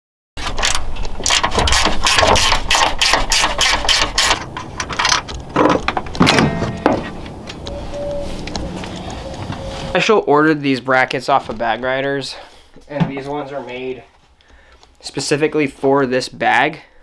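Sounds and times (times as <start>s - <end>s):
sharp metal knocks: 1.2s - 7.7s.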